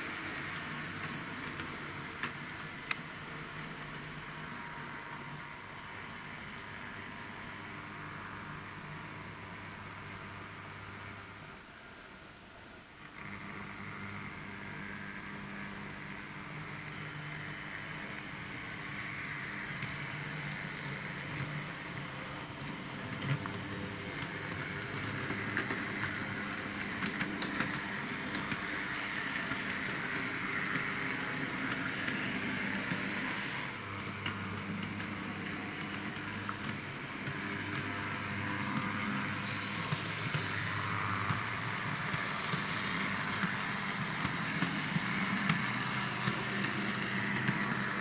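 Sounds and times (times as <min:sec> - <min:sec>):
wheels rolling on rails: 0:00.0 - 0:11.6, 0:13.0 - 0:48.0
small electric motor whirring: 0:13.0 - 0:48.0.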